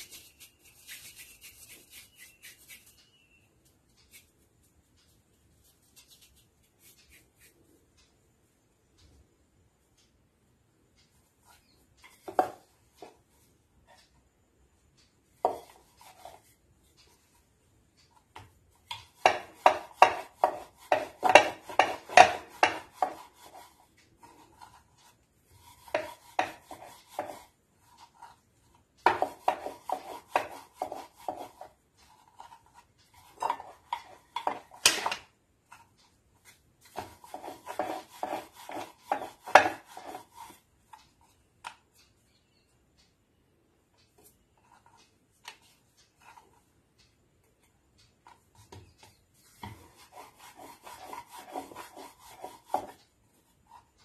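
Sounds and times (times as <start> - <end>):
rolling pin rolling over dough: 11.0 - 42.3, 44.0 - 54.0.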